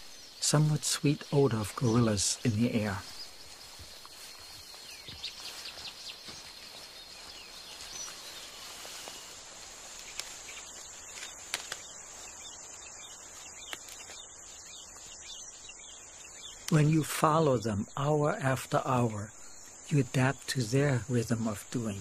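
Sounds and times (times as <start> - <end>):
bird chirps: 0.0 - 22.0
high insect drone: 0.0 - 22.0
faint clicks: 9.9 - 12.0, 13.6 - 14.2.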